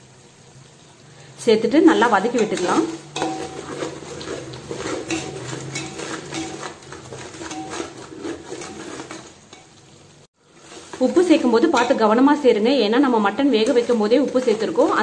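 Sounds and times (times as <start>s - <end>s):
light sizzle: 0.0s - 15.0s
spoon scraping metal pot: 2.0s - 9.8s, 10.6s - 12.3s, 13.2s - 15.0s.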